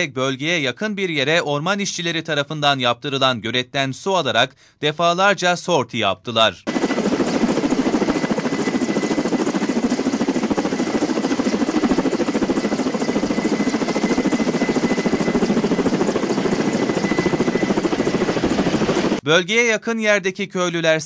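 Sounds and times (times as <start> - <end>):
helicopter rotor beating: 6.7 - 19.2.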